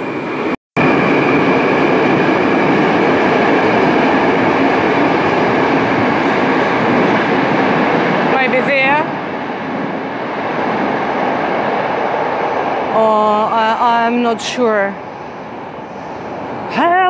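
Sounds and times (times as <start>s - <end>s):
train wheels rumbling: 0.0s - 17.0s.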